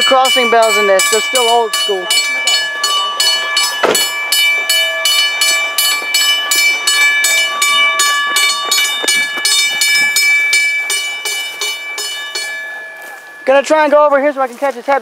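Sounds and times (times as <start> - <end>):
railroad crossing bell ringing: 0.0 - 15.0
loud thump: 3.8 - 4.1.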